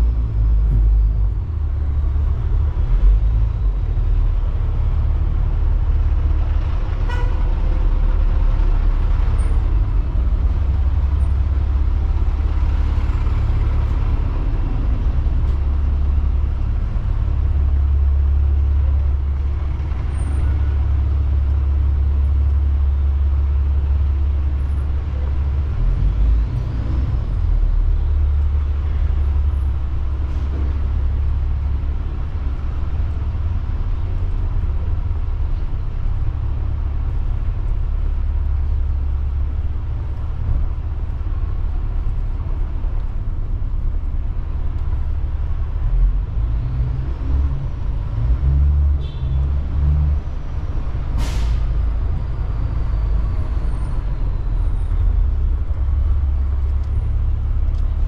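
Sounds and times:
traffic rumble: 0.0s - 58.0s
brief sharp hiss: 51.2s - 51.8s.

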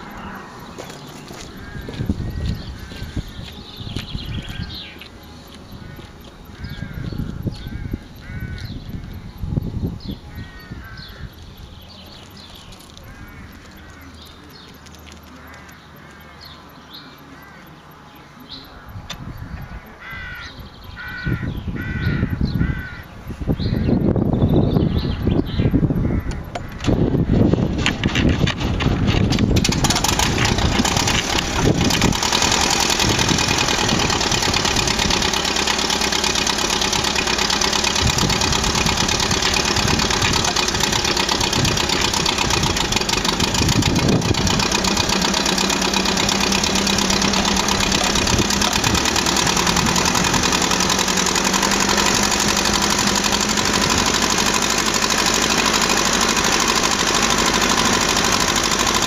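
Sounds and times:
tractor engine starting and running: 0.0s - 59.0s.

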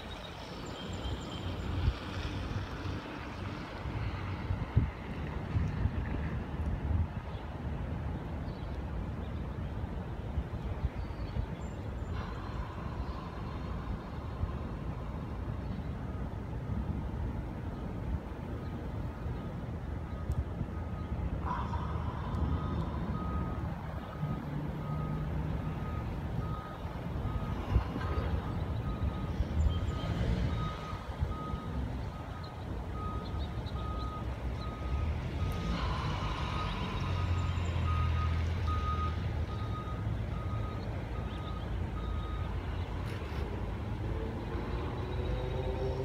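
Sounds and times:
truck reversing alarm beeping: 0.0s - 3.8s, 11.7s - 17.0s, 18.9s - 46.0s
low engine rumble: 0.0s - 46.0s.

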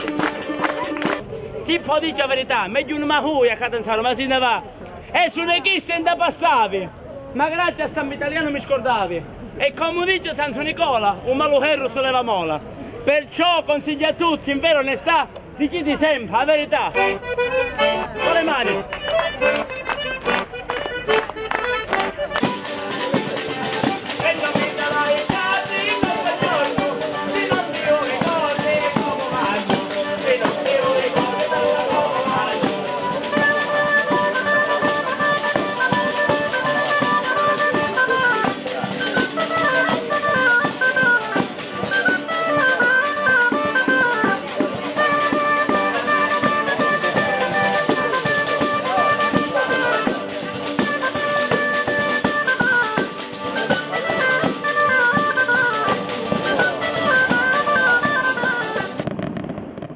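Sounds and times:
accordion and guitar: 0.0s - 3.2s, 15.8s - 59.2s
oboe melody: 17.0s - 59.6s.

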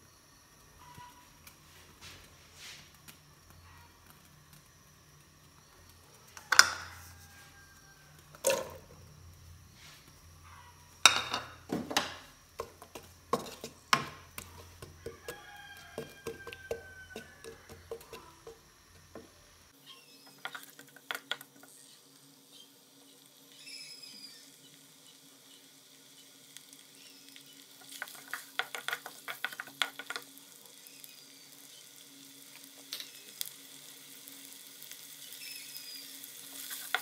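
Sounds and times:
onions sizzling in hot oil: 0.0s - 37.0s
spatula knocks and scrapes: 11.7s - 18.6s.

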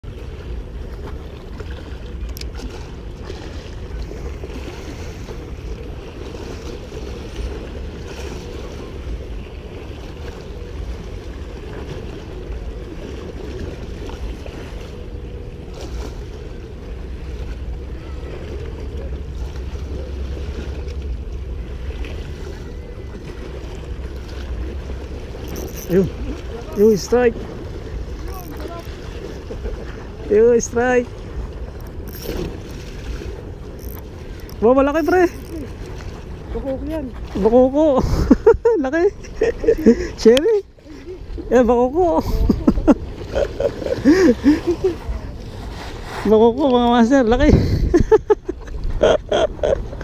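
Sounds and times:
water washing: 0.0s - 50.0s
wind buffeting microphone: 0.0s - 50.0s.

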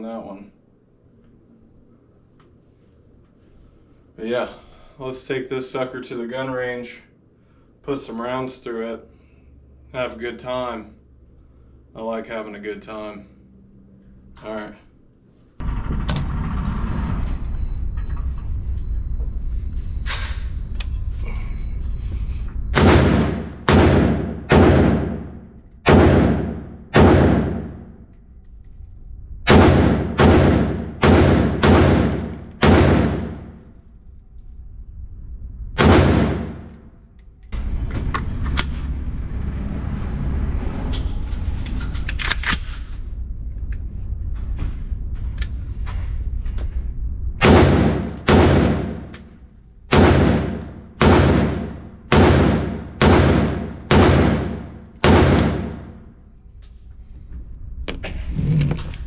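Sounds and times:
rifle shots echoing indoors: 22.7s - 28.3s, 29.4s - 34.2s, 35.8s - 37.7s, 47.4s - 56.3s.

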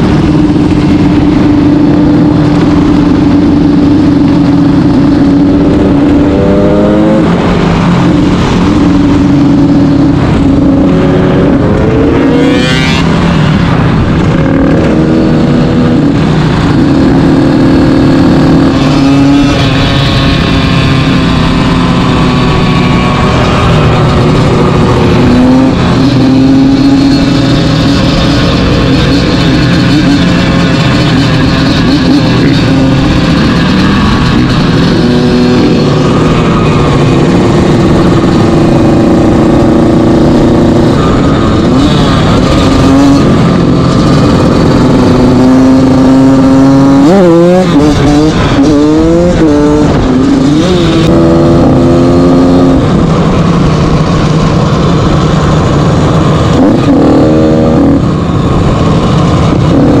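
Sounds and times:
dirt bike engine revving: 0.0s - 60.0s
other dirt bikes and quads: 0.0s - 60.0s.

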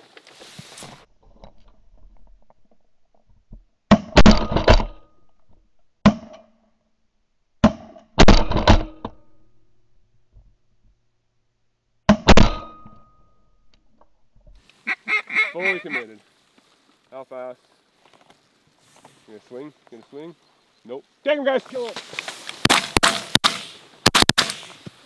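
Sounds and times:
shotgun blasts: 22.6s - 24.8s.

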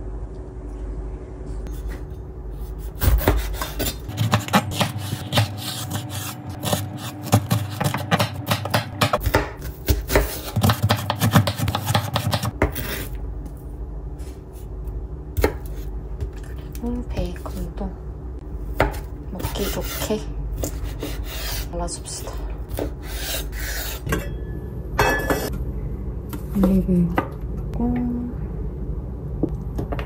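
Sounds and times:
knife chopping on cutting board: 2.9s - 12.9s, 18.8s - 21.6s.

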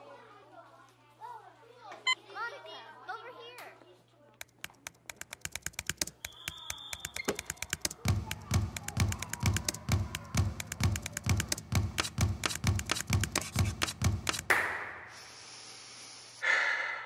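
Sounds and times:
sharp tapping clatter: 4.4s - 14.5s
basketballs bouncing on gym floor: 5.2s - 14.6s.

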